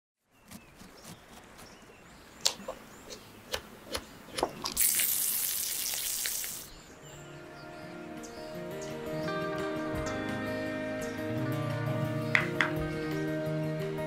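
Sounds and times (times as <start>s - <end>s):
chicken sizzling in hot oil: 4.8s - 6.7s.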